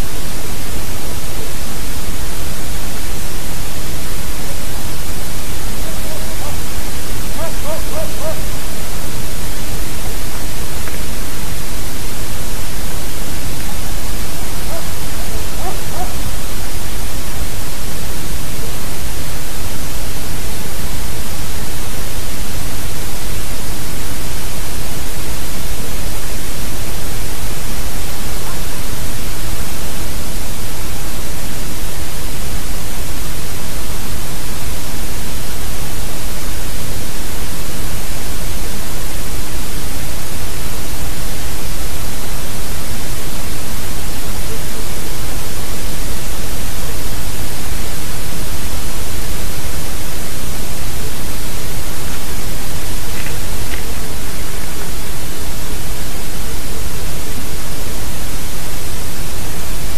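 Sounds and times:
steady static hiss: 0.0 - 59.9.

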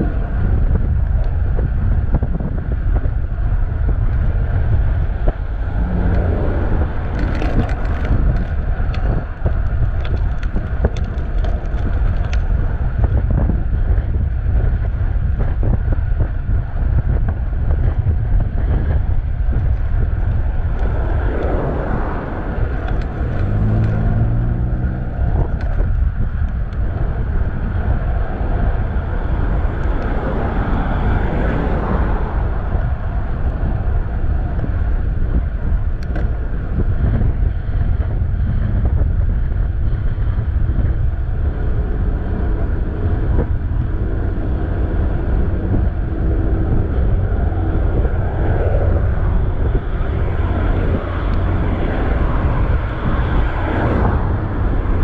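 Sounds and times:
road traffic passing: 0.0 - 55.0
wind buffeting microphone: 0.0 - 55.0
vehicle engine passing close: 3.9 - 11.3, 20.1 - 34.6, 40.1 - 55.0.

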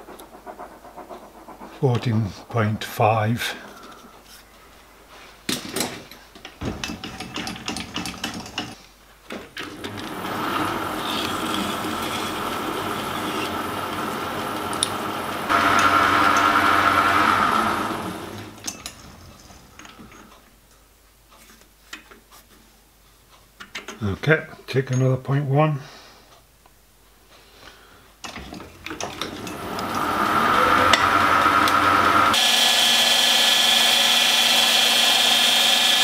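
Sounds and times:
metal lathe whine: 9.7 - 19.0, 29.0 - 36.0
clicks and knocks of handling: 23.4 - 24.0.

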